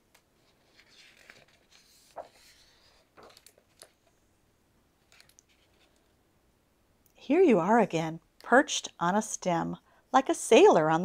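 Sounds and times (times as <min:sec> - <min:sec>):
soft crackles and clicks: 0:00.1 - 0:04.1, 0:05.0 - 0:06.1
paper page turning: 0:00.4 - 0:04.1, 0:05.0 - 0:06.0.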